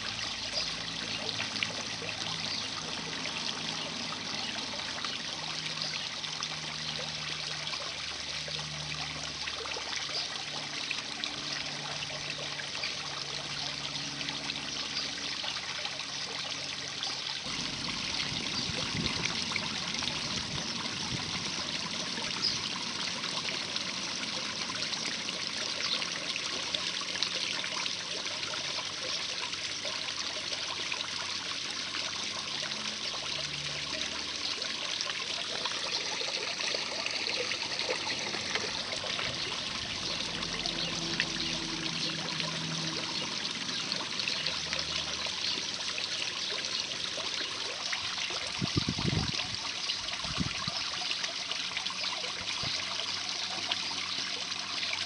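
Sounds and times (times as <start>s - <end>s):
water trickling into a pond: 0.0s - 55.0s.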